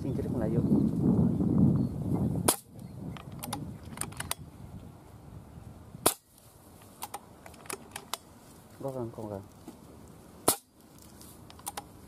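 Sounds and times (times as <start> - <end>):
air rifle shots: 2.4 - 2.7, 6.0 - 6.3, 10.4 - 10.7.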